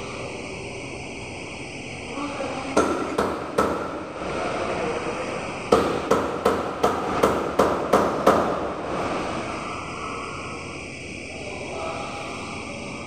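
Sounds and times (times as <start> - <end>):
hammer blows ringing: 2.7 - 4.1, 5.7 - 8.8.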